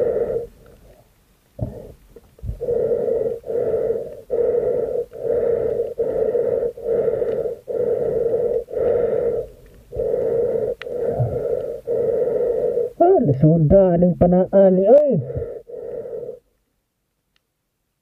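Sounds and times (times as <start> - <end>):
fast breathing through a snorkel: 0.0 - 0.7, 1.6 - 13.0, 15.2 - 16.5.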